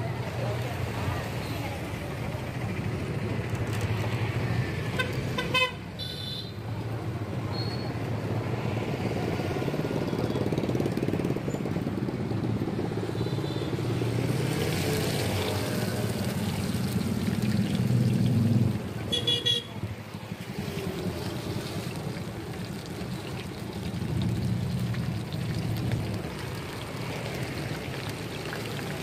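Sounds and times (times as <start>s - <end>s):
roadside traffic noise: 0.0s - 29.0s
oil sizzling in a pan: 14.6s - 18.4s
vehicle horn tooting: 19.1s - 19.8s.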